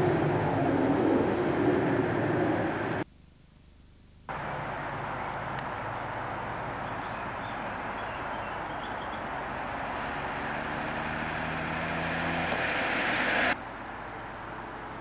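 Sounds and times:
steady background hum: 0.0s - 8.0s
car engine passing by: 7.6s - 13.6s.

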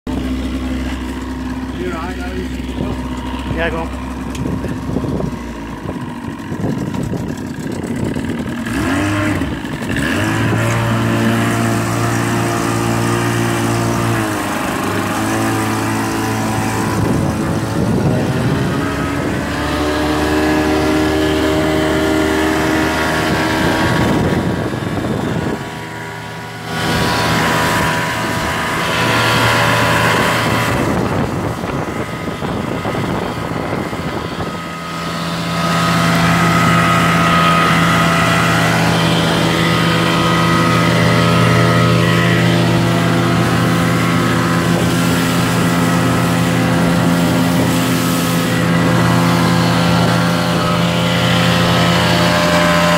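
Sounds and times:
outboard motor running: 0.1s - 52.9s
water rushing under boat: 0.1s - 52.9s.

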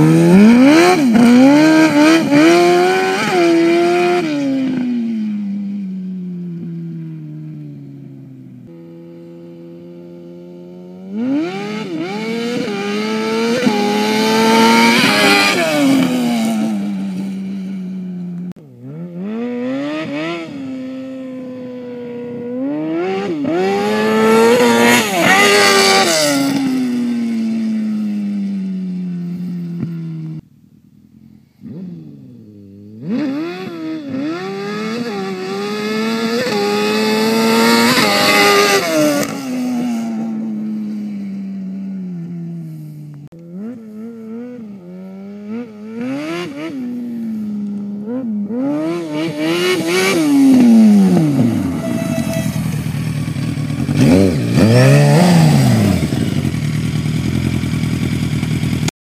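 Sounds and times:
quad engine revving: 0.0s - 5.0s, 11.1s - 17.6s, 18.8s - 27.9s, 31.6s - 41.2s, 42.6s - 58.9s.

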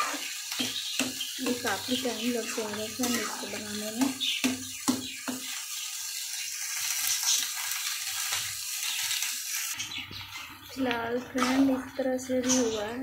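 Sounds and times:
milk sizzling in a pan: 0.0s - 13.0s
metal spatula scraping pan: 1.4s - 4.1s.

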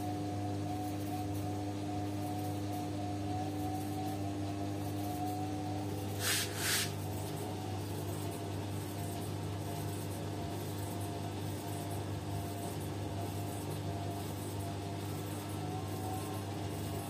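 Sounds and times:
washing machine motor humming: 0.0s - 8.4s
brief hisses: 6.2s - 7.0s.

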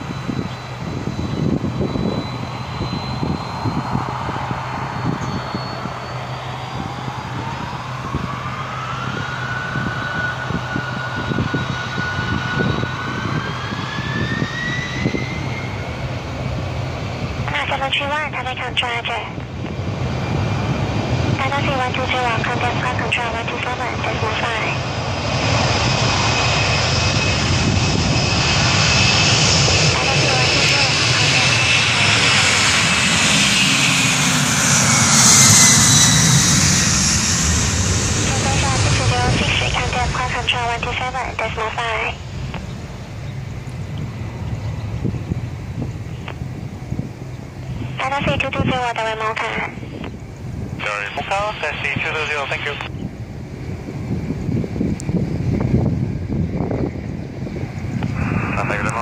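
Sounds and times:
distant jet engines whining: 0.0s - 59.0s
uneven low rumble: 52.7s - 59.0s.

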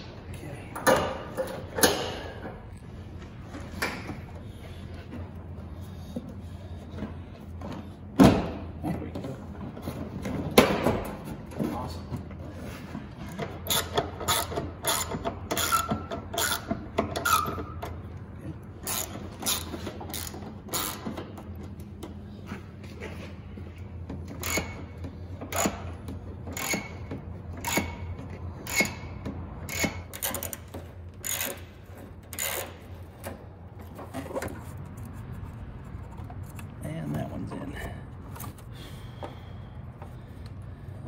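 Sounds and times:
socket ratchet clicking: 26.5s - 27.0s, 29.7s - 31.7s, 32.3s - 32.8s.

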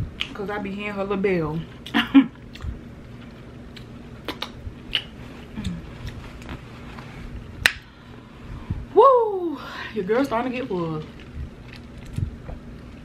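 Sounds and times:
faint steady hum: 0.0s - 13.0s
wet mouth clicks and smacks: 0.2s - 0.4s, 1.8s - 2.8s, 3.7s - 6.2s
chewing ribs close up: 1.8s - 6.5s, 11.0s - 13.0s.

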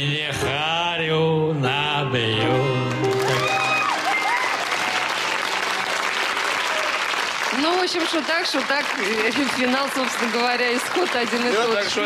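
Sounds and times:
man singing: 0.0s - 3.7s
audience applauding: 2.9s - 12.0s.

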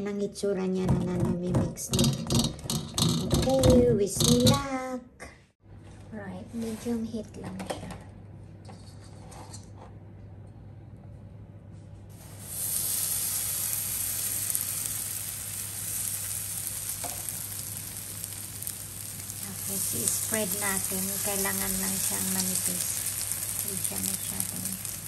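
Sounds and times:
batter sizzling in hot oil: 12.1s - 25.0s.

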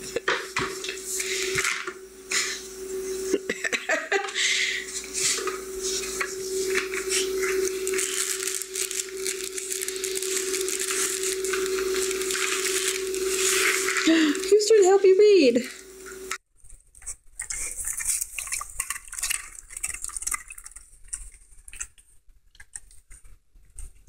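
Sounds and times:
steady tone: 1.1s - 16.4s.

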